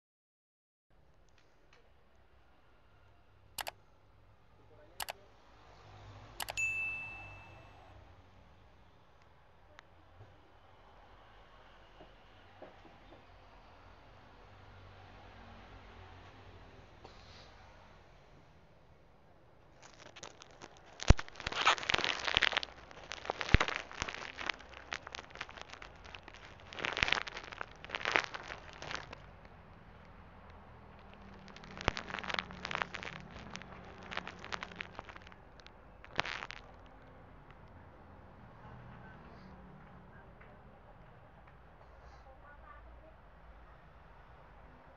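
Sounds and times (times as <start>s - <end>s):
mouse clicks: 6.4s - 6.6s
bell ding: 6.4s - 7.9s
plastic wrapping crinkling: 19.7s - 37.1s.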